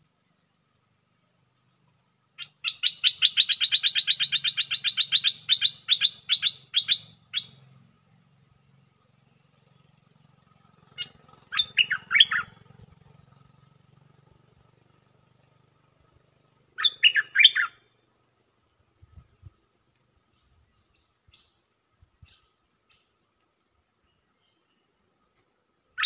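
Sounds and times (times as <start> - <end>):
bulbul chirping: 2.4 - 7.6, 11.0 - 12.6, 16.8 - 17.7.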